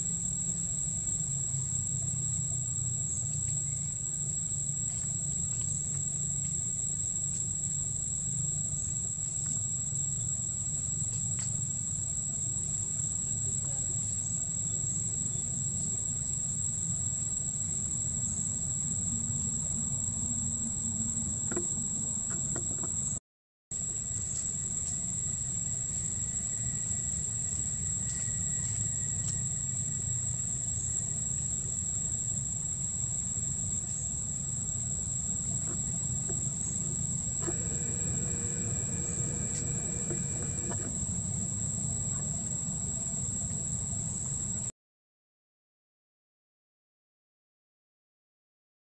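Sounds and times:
high-pitched insect drone: 23.8 - 44.6
low background rumble: 34.8 - 44.7.

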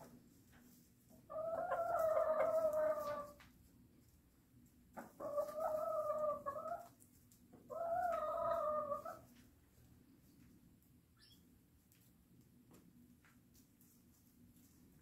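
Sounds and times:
chicken calling: 1.3 - 3.4, 5.1 - 6.9, 7.7 - 9.3.

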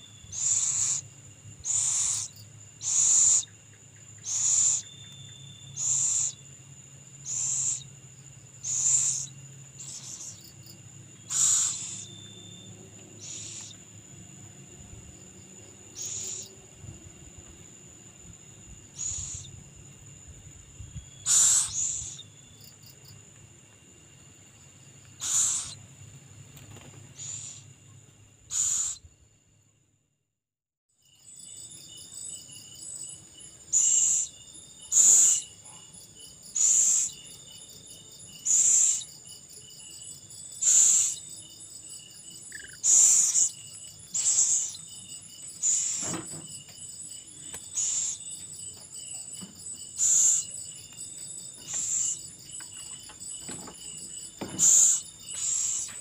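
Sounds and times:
night insects droning: 0.0 - 30.2, 30.9 - 56.0
owl chick rasping begging calls: 0.3 - 3.5, 4.2 - 4.9, 5.8 - 6.4, 7.2 - 7.9, 8.6 - 10.4, 11.3 - 12.1, 13.2 - 13.8, 16.0 - 16.5, 19.0 - 19.5, 21.2 - 22.2, 25.2 - 25.8, 27.2 - 27.6, 28.5 - 29.0, 34.9 - 35.4, 36.6 - 37.1, 38.4 - 39.1, 40.6 - 41.2, 42.5 - 44.8, 45.6 - 46.0, 47.8 - 48.2, 50.0 - 50.5, 51.7 - 52.2, 54.6 - 55.9.

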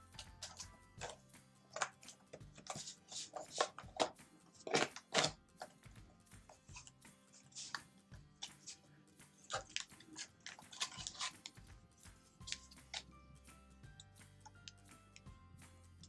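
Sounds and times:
soft background music: 0.0 - 16.0
paperboard tearing: 2.6 - 5.4, 9.5 - 11.6
paperboard box crackling: 9.5 - 11.6.

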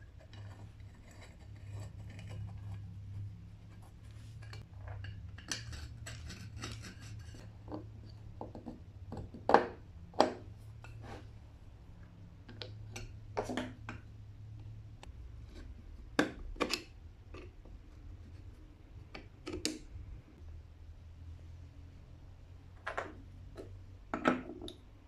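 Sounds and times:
metal clicks and scrapes: 0.0 - 7.9.

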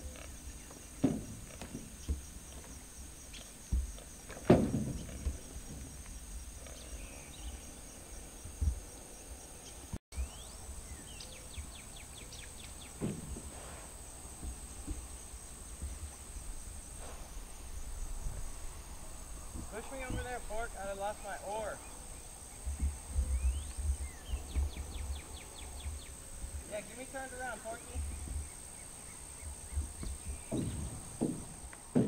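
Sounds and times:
insects droning: 0.0 - 32.0
oar knocking on metal boat: 19.5 - 20.7, 29.6 - 32.0.

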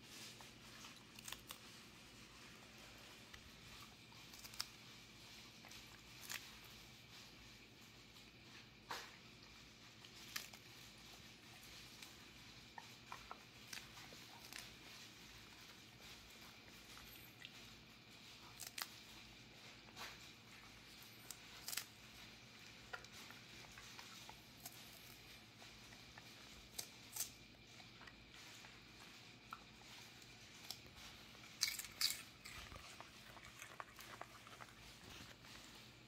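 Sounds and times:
dog chewing lettuce: 0.0 - 36.0.

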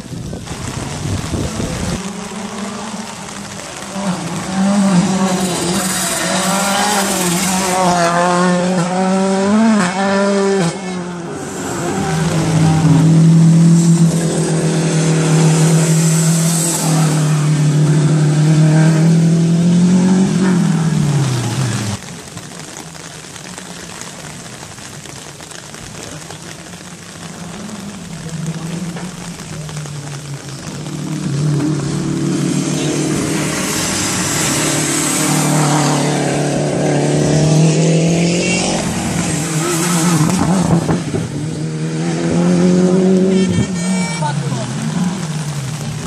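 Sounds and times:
rain hissing and pattering: 0.0 - 46.0
rally car engine accelerating: 0.6 - 22.0, 26.8 - 43.3.

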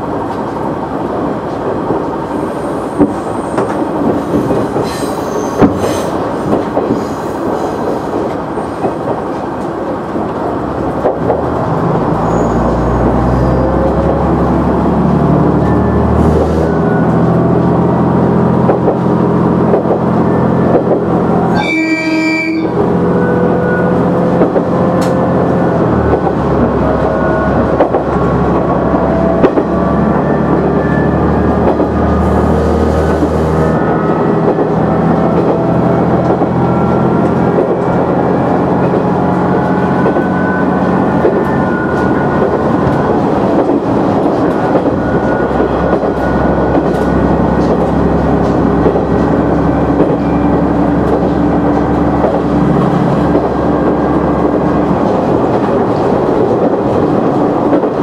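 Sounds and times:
diesel railcar engine drone: 0.0 - 58.0
train horn blast: 21.5 - 23.8.

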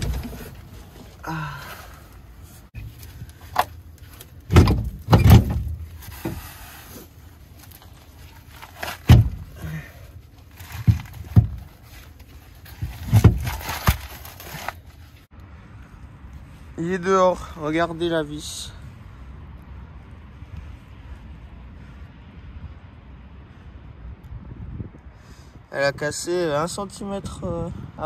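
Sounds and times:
heavy thuds and metallic clunks: 0.0 - 1.1, 4.4 - 6.6, 8.9 - 9.7, 10.7 - 11.8.

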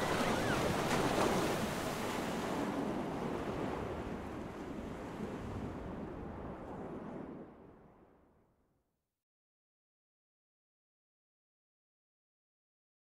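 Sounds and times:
sea waves rushing: 0.0 - 7.6
wind: 0.0 - 8.7.

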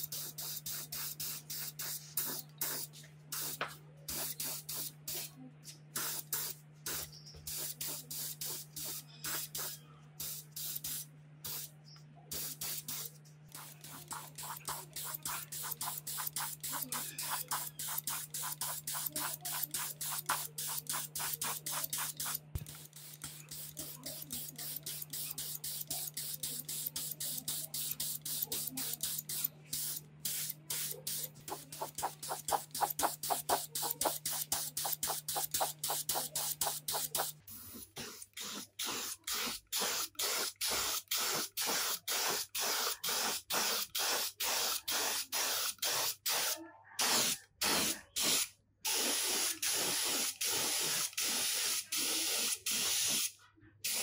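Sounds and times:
spray gun hissing bursts: 12.3 - 53.3.

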